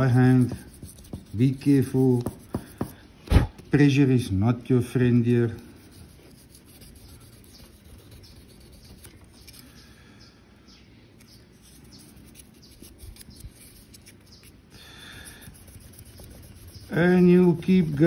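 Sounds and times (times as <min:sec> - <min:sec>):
sandpaper scratching on steel: 0:00.0 - 0:03.0, 0:05.4 - 0:09.7, 0:11.3 - 0:18.0.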